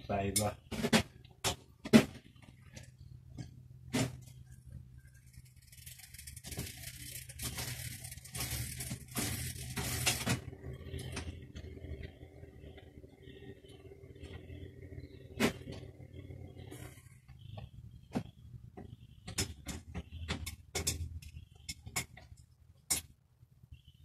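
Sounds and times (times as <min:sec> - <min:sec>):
metal scraping and rattling: 0:04.0 - 0:12.2.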